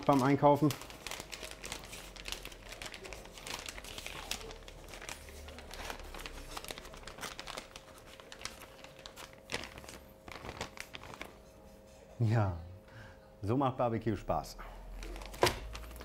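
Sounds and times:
plastic bag crinkling: 0:00.0 - 0:11.4, 0:14.8 - 0:16.0
faint steady hum: 0:00.3 - 0:16.0.

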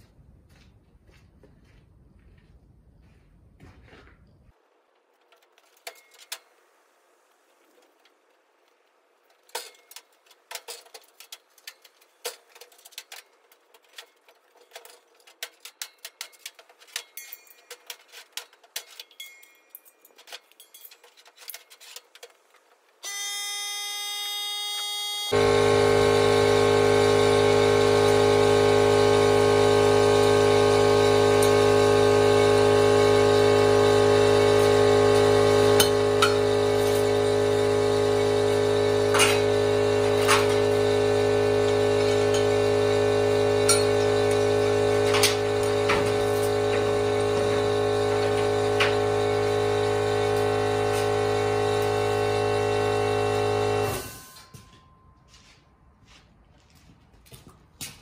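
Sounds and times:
metallic clanks of chain: 0:14.1 - 0:22.0
air compressor running: 0:23.1 - 0:54.5.

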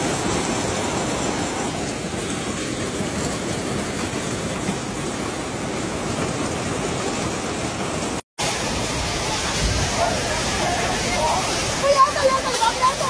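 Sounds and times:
driving rain: 0:00.0 - 0:13.0
storm wind buffeting microphone: 0:00.0 - 0:13.0.

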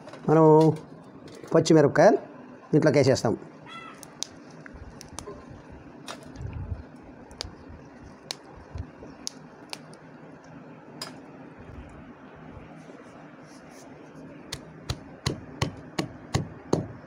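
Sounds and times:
chillies snapping: 0:04.0 - 0:05.4, 0:07.3 - 0:07.6, 0:08.2 - 0:08.6, 0:09.2 - 0:10.0.

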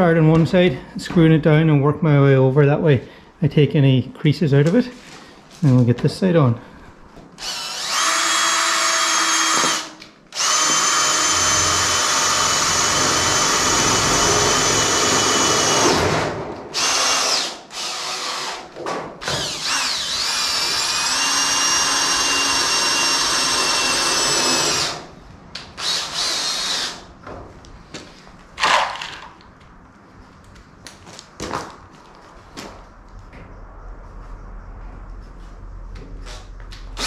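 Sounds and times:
power drill whining: 0:07.4 - 0:18.6, 0:19.2 - 0:25.1, 0:25.8 - 0:27.1.

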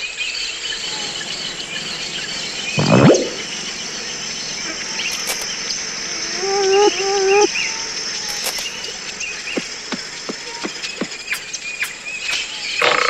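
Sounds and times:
insects chorus: 0:00.0 - 0:13.0
birds chirping: 0:00.3 - 0:13.0
wavering pitched voice: 0:02.7 - 0:05.4, 0:06.1 - 0:08.4.

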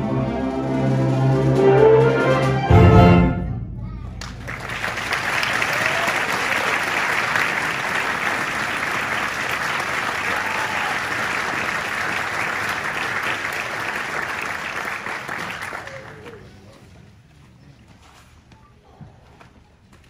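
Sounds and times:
audience applauding: 0:04.2 - 0:16.7.

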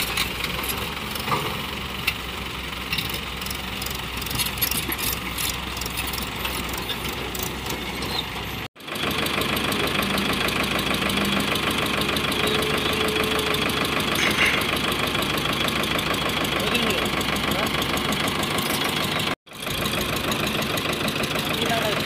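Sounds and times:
excavator diesel engine running: 0:00.0 - 0:22.0
excavator digging sand: 0:00.0 - 0:22.0.

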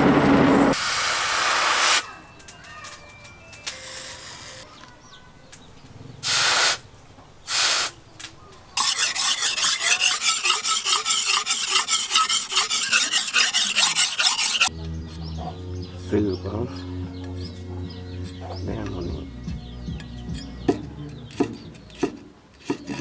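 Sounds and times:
cleaver scraping on sharpening stone: 0:08.8 - 0:15.3, 0:20.0 - 0:23.0.

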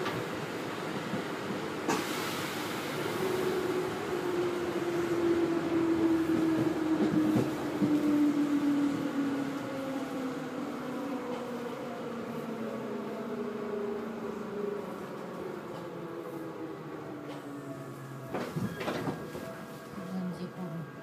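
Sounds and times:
train running noise: 0:03.2 - 0:09.2, 0:17.1 - 0:21.0.

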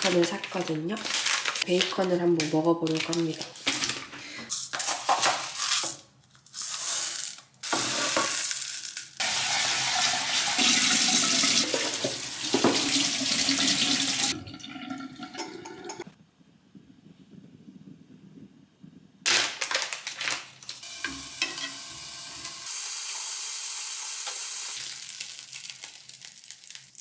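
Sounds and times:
water running at sink: 0:09.2 - 0:16.1, 0:20.8 - 0:24.9.

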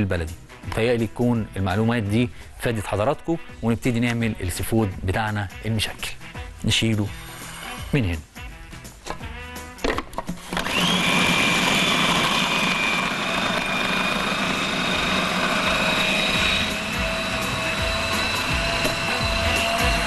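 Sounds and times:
electric blender motor whine: 0:10.3 - 0:20.0.

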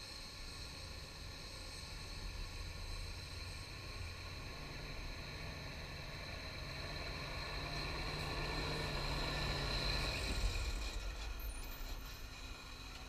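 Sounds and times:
truck diesel engine passing by: 0:03.9 - 0:13.0.

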